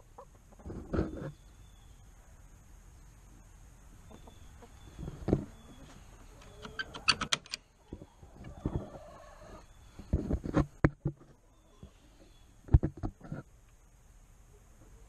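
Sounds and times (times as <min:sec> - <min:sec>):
metal latch clicking and rattling: 0:06.6 - 0:07.6.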